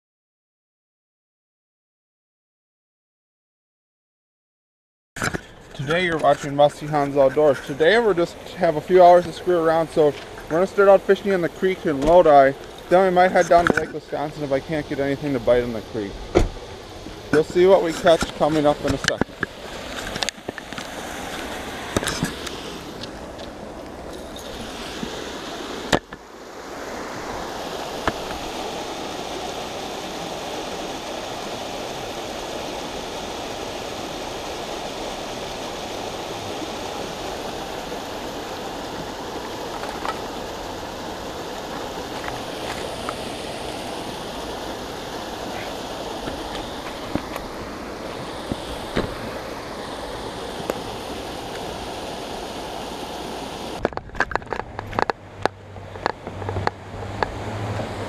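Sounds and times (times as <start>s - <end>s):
creek water rushing: 5.2s - 58.0s
sharp clicks and knocks: 53.8s - 57.4s.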